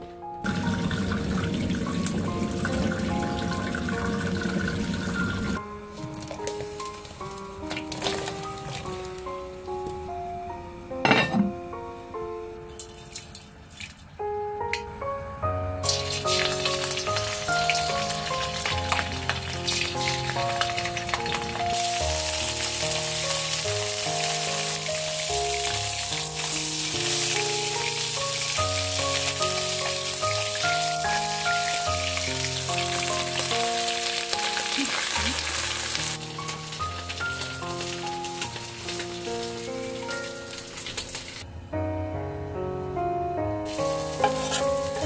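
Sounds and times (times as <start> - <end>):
background music melody: 0.0 - 45.0
fish sizzling in oil: 0.5 - 9.2, 15.8 - 41.4, 43.7 - 45.0.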